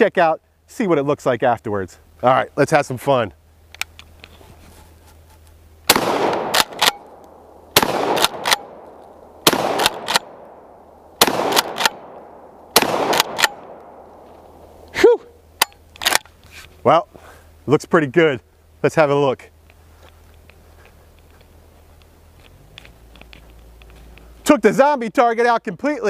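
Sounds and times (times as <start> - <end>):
shotgun shots: 5.9 - 14.2.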